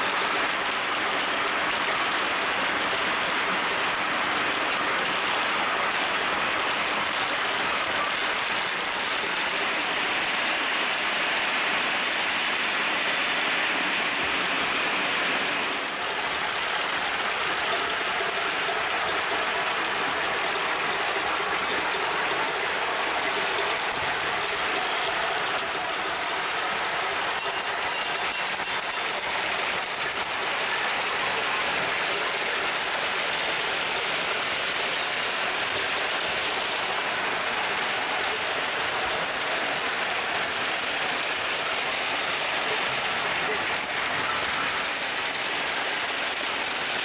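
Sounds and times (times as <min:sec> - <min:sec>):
marbles clattering on wooden tracks: 0:16.0 - 0:47.0.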